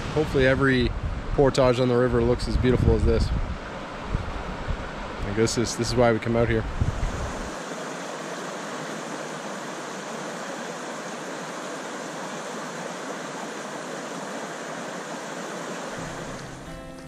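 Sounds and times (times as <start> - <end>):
white water rushing: 3.6 - 17.0
music: 16.0 - 17.0.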